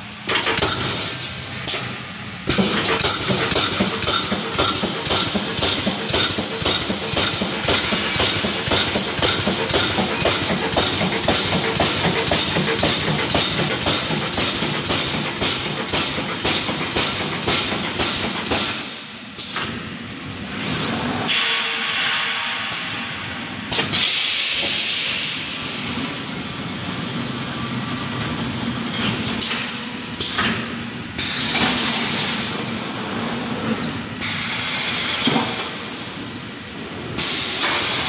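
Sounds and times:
welding machine clanking: 0.2s - 19.8s.

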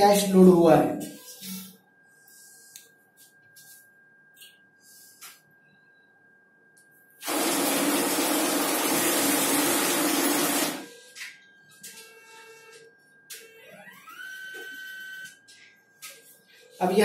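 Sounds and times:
cash dispenser whirring: 7.2s - 10.9s.

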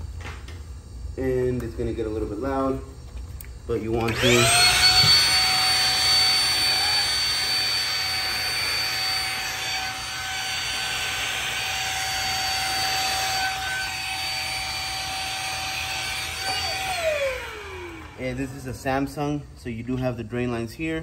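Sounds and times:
vacuum cleaner running: 3.7s - 19.5s.

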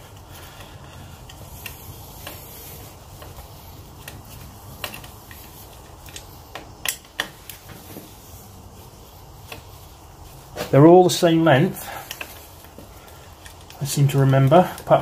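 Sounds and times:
hand tool clicking on bolts: 0.0s - 7.7s.

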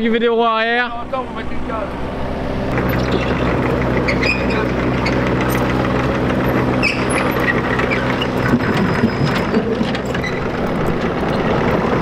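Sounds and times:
excavator diesel engine running: 0.2s - 12.0s.

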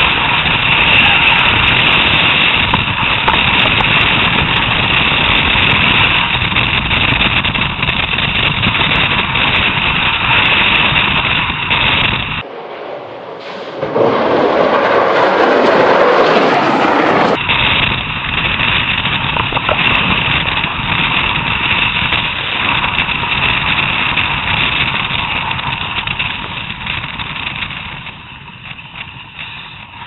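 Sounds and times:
wind rushing: 11.4s - 21.6s.

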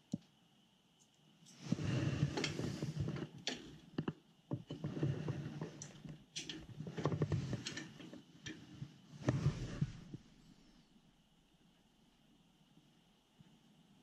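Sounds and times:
hands rubbing and scraping fittings: 1.4s - 10.2s.

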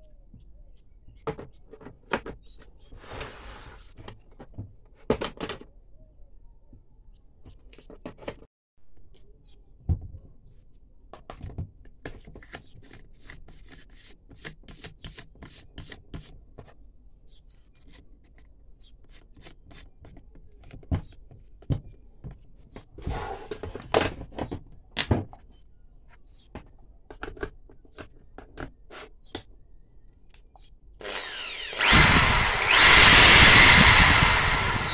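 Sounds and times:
drill bits clicking and knocking: 31.0s - 34.9s
electric drill running: 31.0s - 34.9s.

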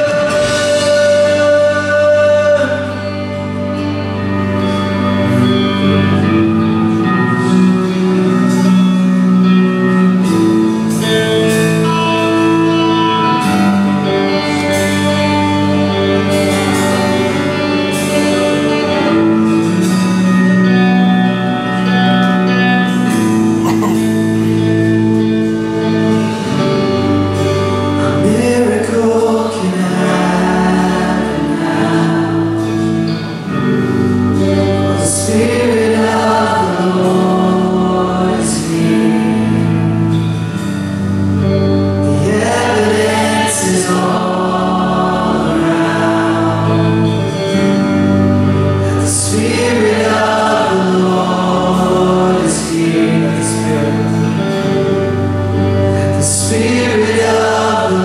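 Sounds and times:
band playing slow song: 0.0s - 58.0s
woman singing: 23.6s - 24.2s.

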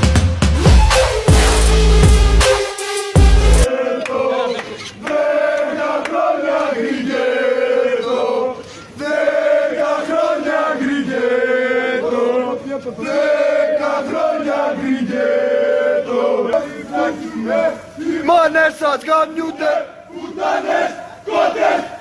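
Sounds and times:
crowd of men chanting: 3.6s - 18.6s, 19.5s - 22.0s.

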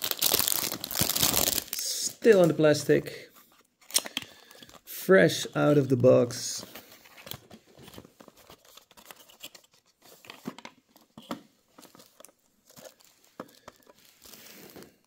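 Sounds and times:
cardboard and plastic rustling: 0.0s - 1.8s, 6.6s - 15.0s.

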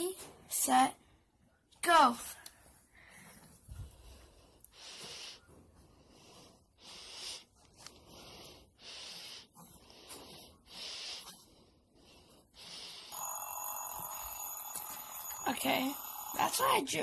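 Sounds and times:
electronic timer alarm beeping: 13.1s - 17.0s.

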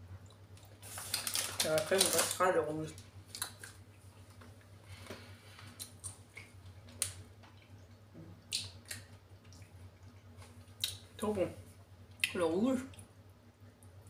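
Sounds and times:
low steady hum: 0.0s - 14.0s
plastic bag crinkling: 0.6s - 3.7s
wet mouth clicks: 8.4s - 10.2s.

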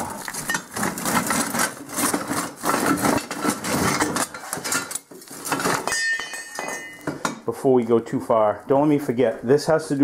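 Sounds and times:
metal parts clanking and scraping: 0.3s - 7.3s.

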